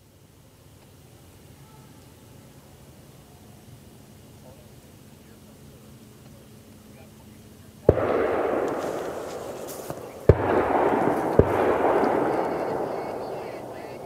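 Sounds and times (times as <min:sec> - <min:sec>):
gunshots with rolling echo: 0:07.9 - 0:14.0.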